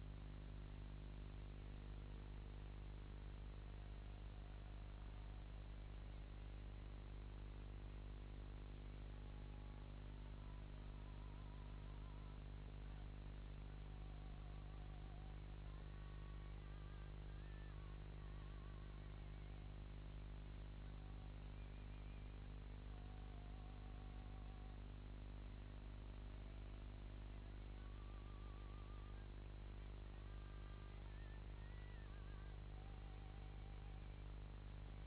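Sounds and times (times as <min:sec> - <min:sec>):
electrical hum and hiss: 0:00.0 - 0:35.0
faint quavering music: 0:08.9 - 0:25.6, 0:27.0 - 0:35.0.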